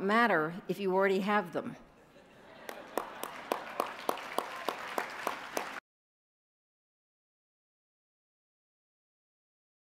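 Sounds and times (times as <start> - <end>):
audience applauding: 2.5 - 5.8
single sharp claps: 2.7 - 5.8.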